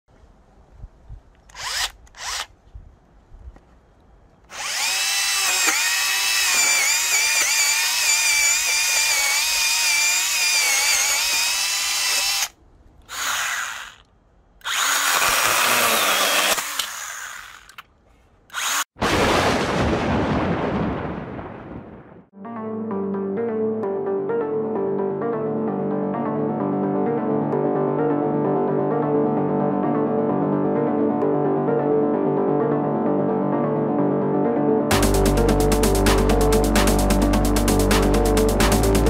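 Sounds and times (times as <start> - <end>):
chainsaw motor whine cutting wood: 1.5 - 2.5, 4.5 - 12.5, 13.1 - 14.0, 14.6 - 17.8.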